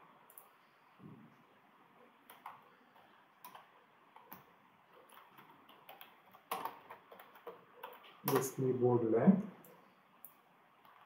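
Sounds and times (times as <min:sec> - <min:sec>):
low hiss: 0:00.0 - 0:11.0
faint keyboard keystrokes: 0:02.3 - 0:08.7.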